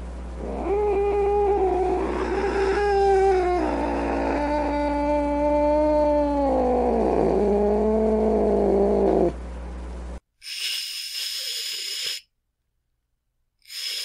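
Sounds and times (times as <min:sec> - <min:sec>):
low hum: 0:00.0 - 0:10.2
cat yowling: 0:00.4 - 0:06.9
cat hissing: 0:10.4 - 0:12.2, 0:13.7 - 0:14.0.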